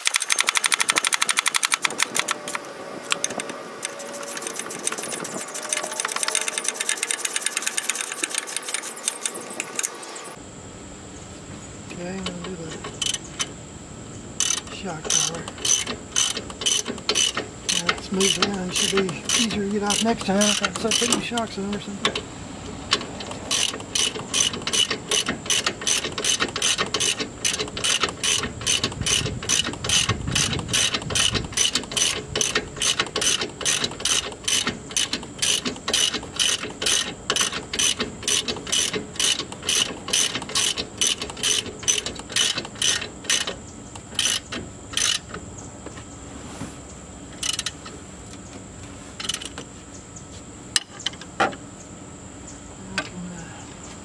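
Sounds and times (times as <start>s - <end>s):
ratchet wrench clicking: 0.0s - 10.0s, 12.9s - 13.5s, 14.4s - 45.4s, 47.4s - 48.0s, 49.2s - 49.6s.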